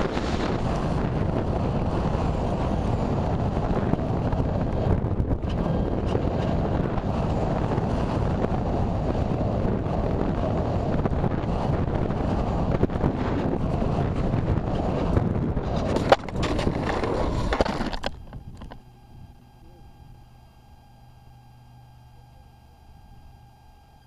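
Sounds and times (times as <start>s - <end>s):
air rushing past camera: 0.0s - 17.6s
scraping along asphalt: 0.0s - 18.8s.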